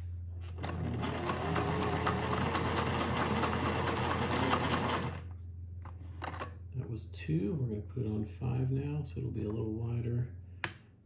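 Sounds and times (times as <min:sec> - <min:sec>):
sewing machine running: 0:00.6 - 0:05.3.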